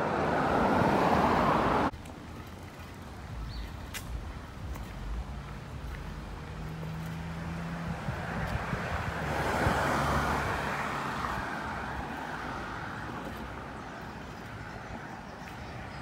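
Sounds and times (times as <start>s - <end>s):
car driving past: 6.0s - 13.3s.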